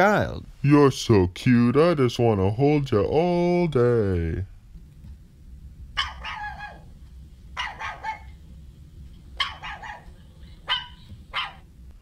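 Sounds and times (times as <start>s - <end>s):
puppy barking: 6.0s - 6.9s, 7.6s - 8.4s, 9.4s - 11.7s.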